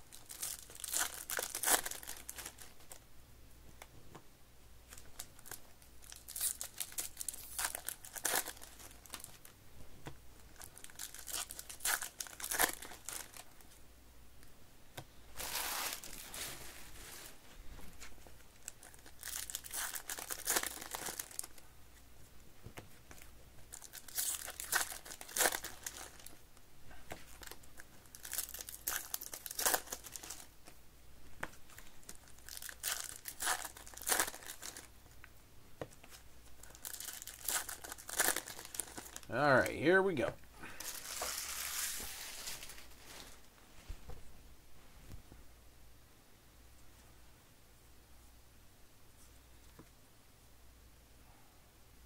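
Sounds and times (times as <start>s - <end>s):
foil wrappers crinkling and tearing: 0.1s - 3.0s, 4.9s - 9.5s, 10.6s - 13.6s, 15.4s - 17.3s, 18.5s - 21.6s, 23.7s - 26.4s, 27.2s - 30.8s, 31.7s - 34.9s, 36.6s - 39.4s, 40.7s - 43.4s.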